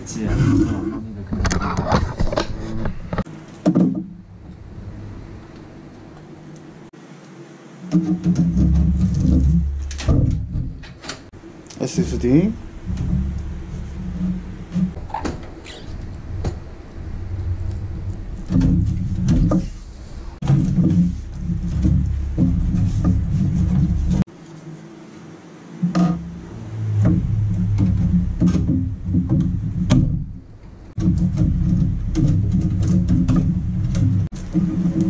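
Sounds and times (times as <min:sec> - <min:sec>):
background music with bass line: 0:26.1 - 0:35.0
computer parts clicking and knocking: 0:31.0 - 0:35.0.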